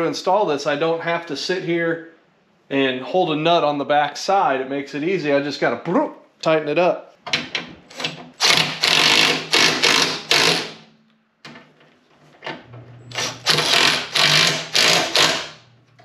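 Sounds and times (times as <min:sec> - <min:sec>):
impact driver bursts: 0:08.0 - 0:10.9, 0:13.1 - 0:15.6.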